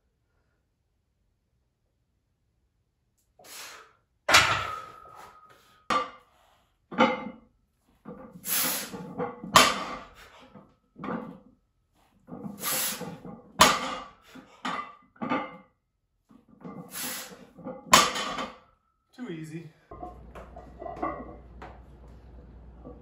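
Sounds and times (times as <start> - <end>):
barbell plates clanking down: 4.3 - 6.1, 9.2 - 10.1, 19.9 - 21.6.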